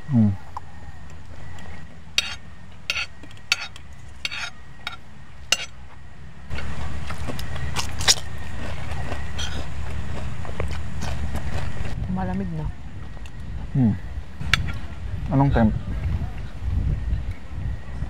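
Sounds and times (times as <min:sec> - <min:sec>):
steady low rumble: 0:00.0 - 0:18.0
cutlery clinking on a plate: 0:02.2 - 0:05.7.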